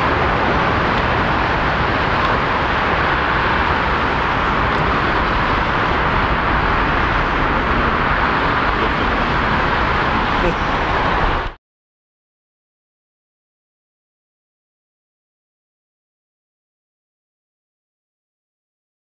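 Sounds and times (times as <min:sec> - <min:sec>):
jet engine rushing: 0:00.0 - 0:11.6.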